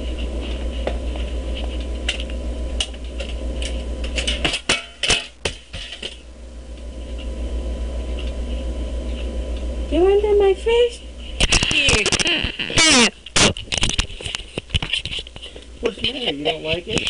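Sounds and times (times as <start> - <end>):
low hum and hiss: 0.0 - 17.0.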